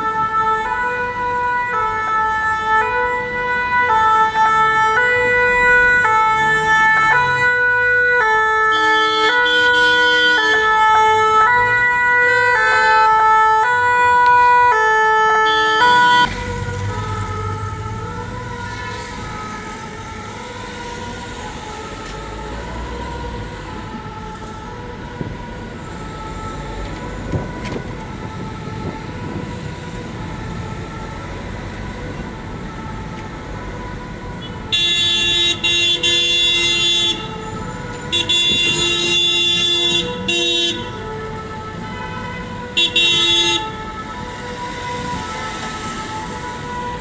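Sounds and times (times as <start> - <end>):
city traffic rumble: 0.0 - 47.0
car horn blasts: 34.7 - 37.3, 38.1 - 40.9, 41.9 - 43.7.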